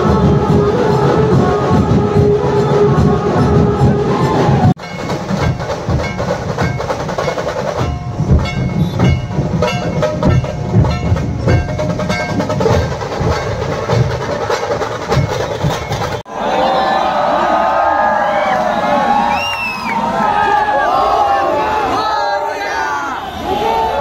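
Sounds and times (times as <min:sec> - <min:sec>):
pounding drums: 0:00.0 - 0:16.3
sharp clicking drum hits: 0:04.8 - 0:16.3.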